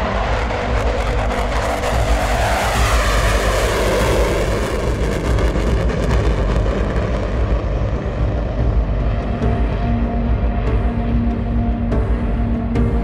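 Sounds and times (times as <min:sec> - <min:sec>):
jet roaring in afterburner: 0:00.0 - 0:09.1.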